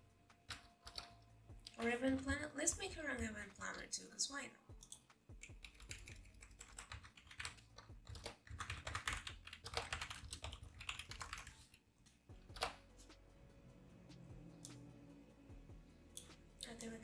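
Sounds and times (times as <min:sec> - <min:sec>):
fast typing on keyboard: 0:00.5 - 0:01.1, 0:04.8 - 0:11.8.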